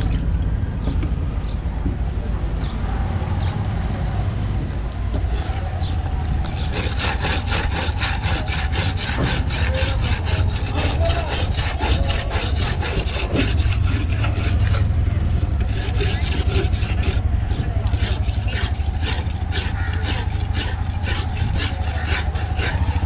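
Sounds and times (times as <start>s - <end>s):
steady low rumble: 0.0s - 23.0s
knife rasping on sharpening block: 6.6s - 14.8s, 15.6s - 23.0s.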